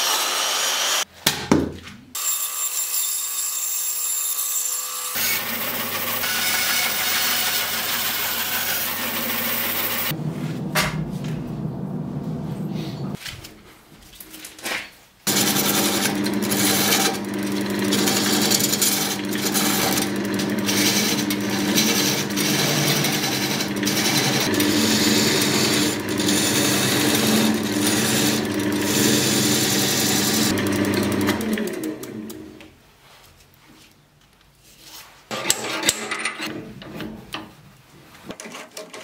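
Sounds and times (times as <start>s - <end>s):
wood lathe humming: 5.2s - 10.2s, 15.3s - 32.5s
gouge scraping wood on lathe: 15.3s - 31.8s.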